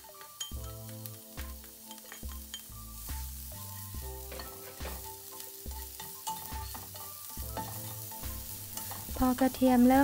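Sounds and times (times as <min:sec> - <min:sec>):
spatula scraping and tapping pan: 0:00.0 - 0:02.8, 0:03.8 - 0:09.2
garlic sizzling in oil: 0:00.0 - 0:10.0
soft background music: 0:00.0 - 0:10.0.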